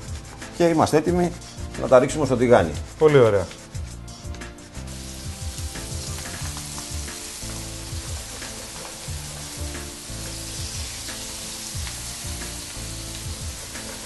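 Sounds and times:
food sizzling in hot oil: 4.6s - 14.0s.

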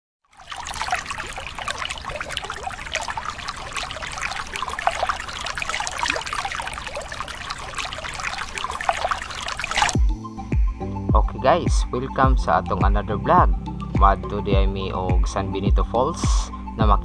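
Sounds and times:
stream water rushing over rock: 0.3s - 10.0s.

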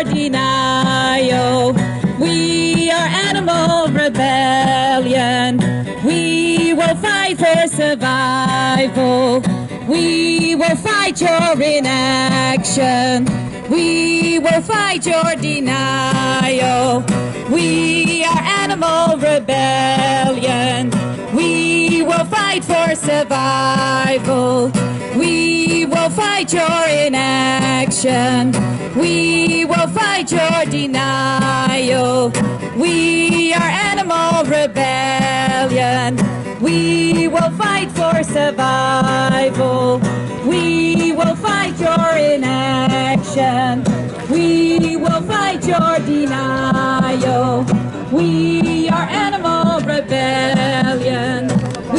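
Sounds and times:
strummed acoustic guitar: 0.0s - 51.9s
woman singing into a microphone: 0.0s - 51.9s.

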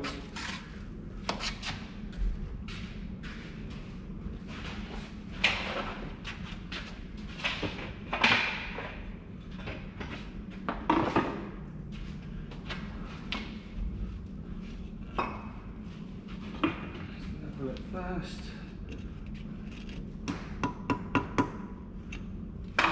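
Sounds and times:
footsteps: 1.6s - 5.6s
tools and bricks knocking: 20.2s - 21.6s.

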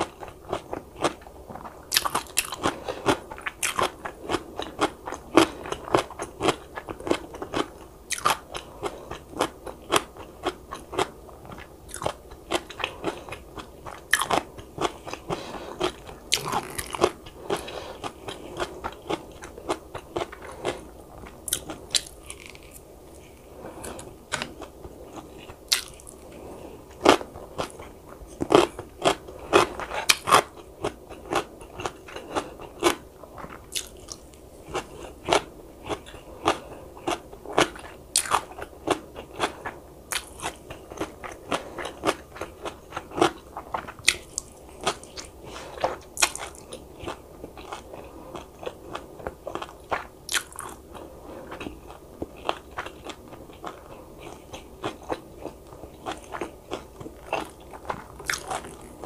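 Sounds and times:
person biting and chewing food: 0.5s - 50.8s, 51.4s - 59.0s.

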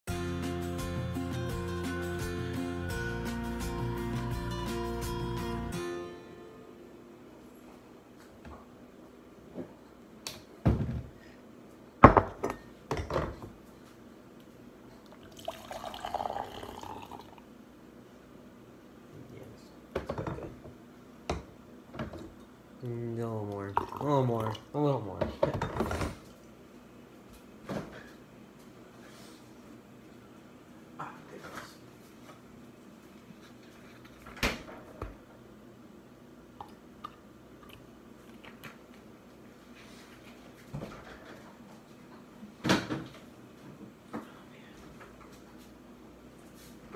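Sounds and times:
kitchen cabinet knocks: 10.6s - 11.1s
coffee pouring into mug: 15.1s - 17.5s, 23.7s - 24.7s.

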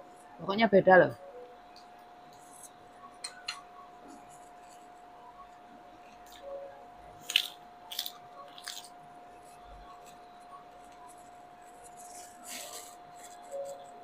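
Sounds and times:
faint hum: 0.0s - 14.0s
lettuce crunching: 7.2s - 9.0s.

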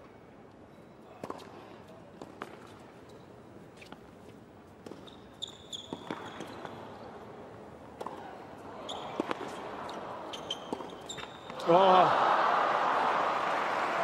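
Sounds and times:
faint crowd noise: 0.0s - 14.0s
sneakers squeaking on court: 4.8s - 7.2s, 8.8s - 11.6s
racket hitting tennis ball: 5.9s - 6.8s, 9.1s - 9.7s, 10.5s - 11.6s.

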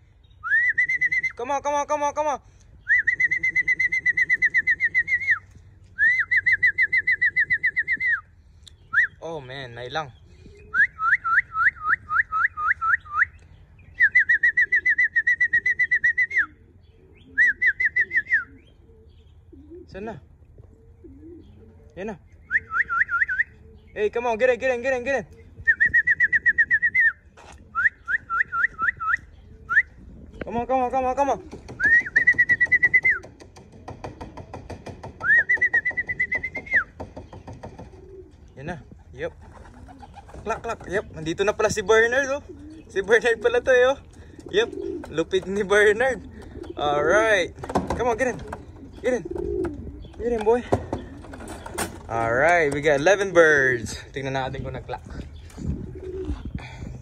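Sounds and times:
songbird whistled song: 0.2s - 1.4s, 2.8s - 9.5s, 10.1s - 19.8s, 22.3s - 24.1s, 25.3s - 30.5s, 31.6s - 33.5s, 35.1s - 38.2s.

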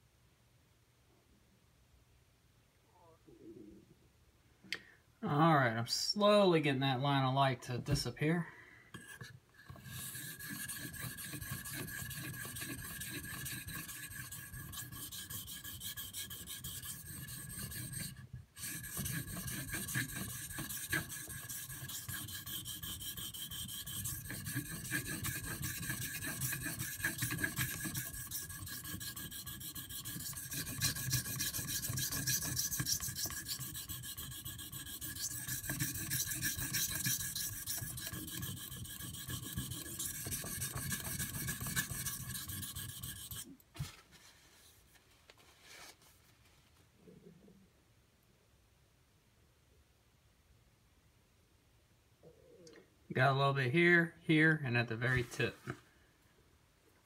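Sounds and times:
knife scraping on whetstone: 9.0s - 43.6s.

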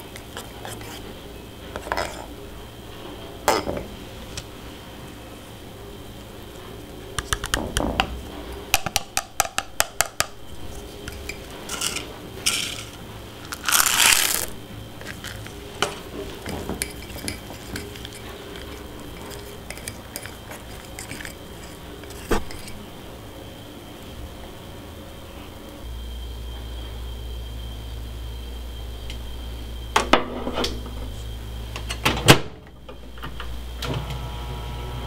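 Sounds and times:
whisk clinking against a mug: 16.4s - 22.8s.

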